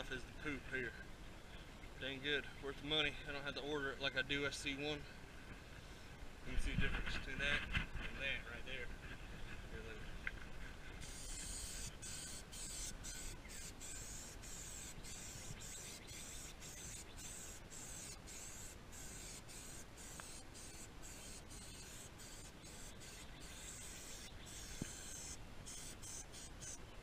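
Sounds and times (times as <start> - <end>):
aerosol can spraying: 11.0 - 26.8.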